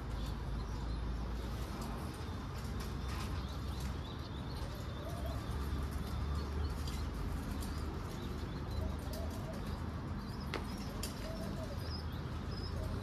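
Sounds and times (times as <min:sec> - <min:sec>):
pigeons cooing: 0:04.5 - 0:06.7, 0:07.4 - 0:13.0.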